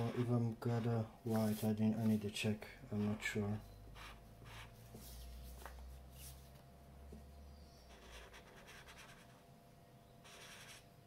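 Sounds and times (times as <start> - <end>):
marker scratching on paper: 0.0 - 0.4, 4.0 - 6.4, 7.9 - 9.4, 10.2 - 10.9.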